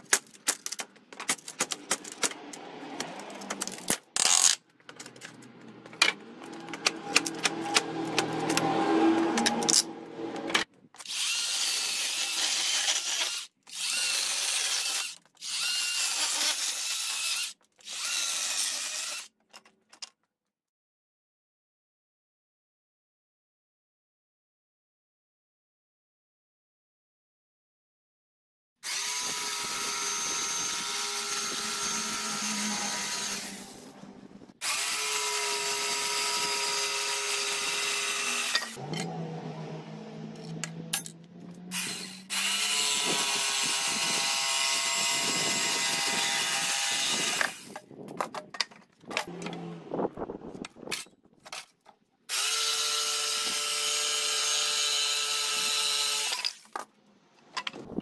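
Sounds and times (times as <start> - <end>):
electric jigsaw cutting boards: 1.1 - 19.3, 28.8 - 47.9, 52.3 - 56.6.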